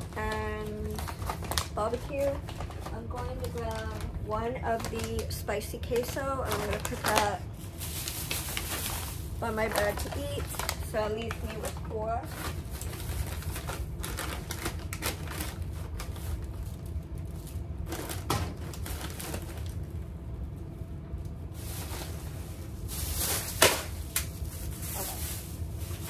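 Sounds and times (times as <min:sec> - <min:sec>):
plastic snack bags crinkling: 0:00.0 - 0:20.2, 0:21.5 - 0:26.0
packages knocking in basket: 0:22.9 - 0:26.0.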